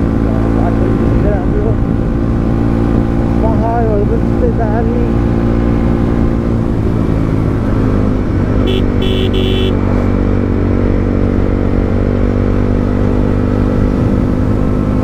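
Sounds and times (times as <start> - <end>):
motorcycle engine running: 8.5 - 12.0
horn beeps: 8.6 - 9.8.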